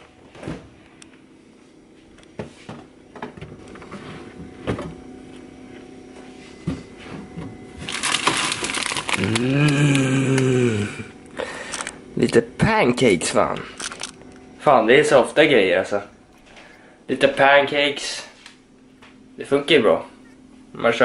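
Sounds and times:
plastic packaging crinkling: 7.8s - 10.5s, 13.7s - 14.5s.

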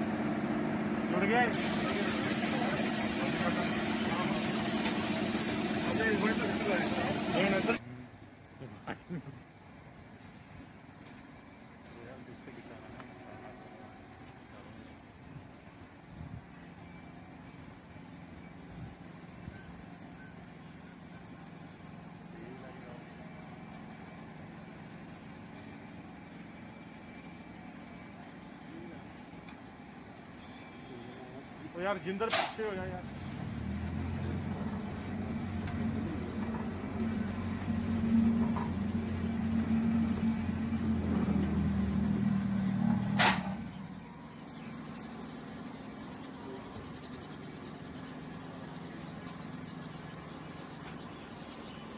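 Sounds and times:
locomotive humming: 0.0s - 8.6s, 9.8s - 51.9s
brief sharp hiss: 1.5s - 7.8s, 32.3s - 32.6s, 43.1s - 43.6s.

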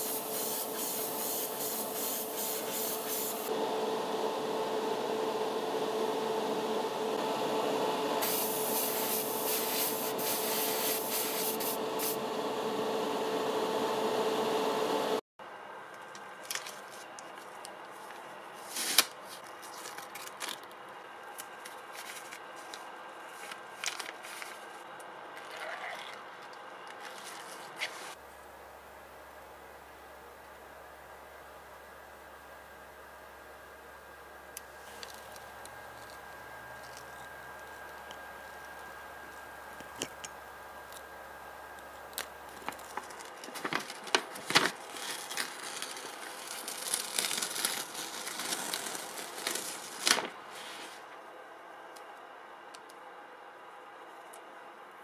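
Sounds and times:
airbrush hissing: 0.0s - 3.5s, 8.2s - 12.2s
steady hum: 0.0s - 25.4s, 26.3s - 47.8s
masking tape rustling: 42.0s - 51.1s.

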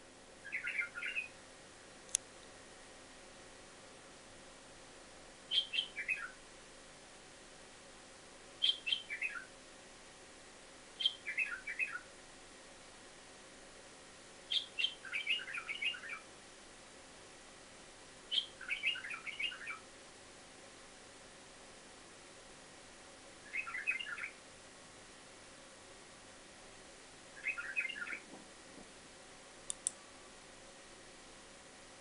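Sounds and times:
bird chirping: 0.4s - 1.4s, 5.5s - 6.4s, 8.6s - 9.5s, 11.0s - 12.1s, 14.5s - 16.3s, 18.3s - 19.8s, 23.4s - 24.4s, 27.4s - 28.3s.

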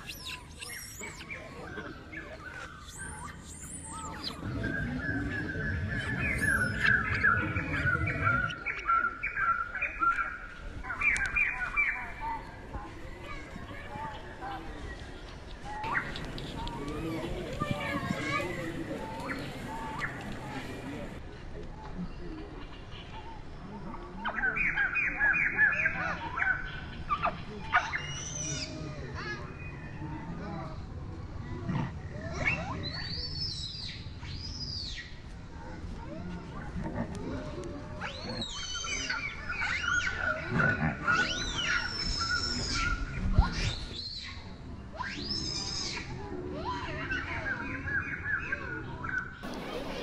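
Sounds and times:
high chirping animal calls: 0.0s - 10.2s
birds chirping: 0.0s - 21.2s, 47.1s - 50.0s.

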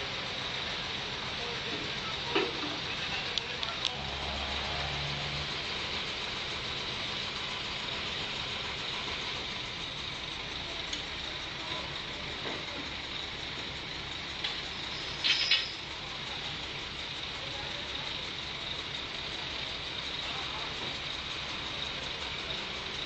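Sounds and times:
heavy machinery engine running: 0.0s - 23.0s.

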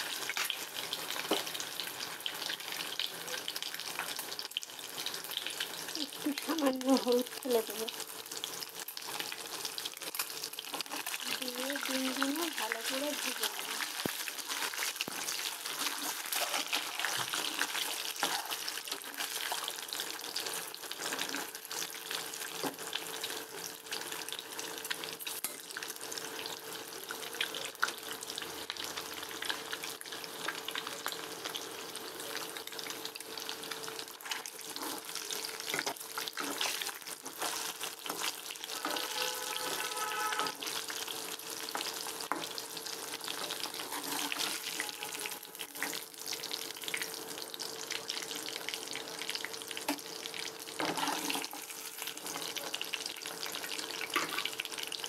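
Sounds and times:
eggs sizzling in hot oil: 0.0s - 55.0s
metal spatula scraping: 14.3s - 19.6s, 34.2s - 40.8s, 43.4s - 46.0s, 50.8s - 52.5s.

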